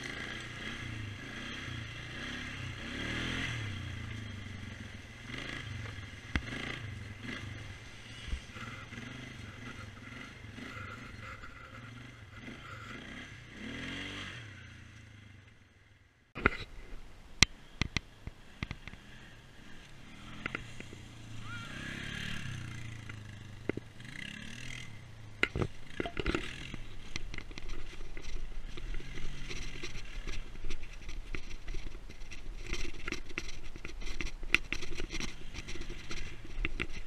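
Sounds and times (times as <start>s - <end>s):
atv engine revving: 0.0s - 16.7s, 17.5s - 37.0s
sharp clicks and knocks: 25.4s - 37.0s.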